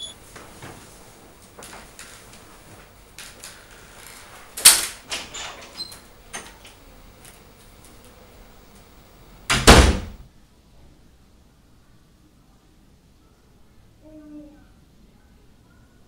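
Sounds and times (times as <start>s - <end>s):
door slamming shut: 9.5s - 10.2s.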